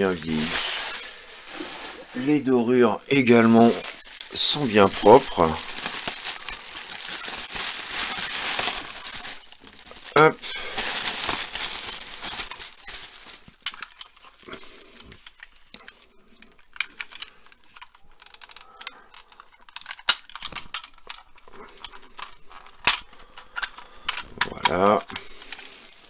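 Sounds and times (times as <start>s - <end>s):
plastic bag crinkling: 0.0s - 26.0s
plastic toy parts clicking: 13.6s - 14.4s, 15.1s - 25.6s.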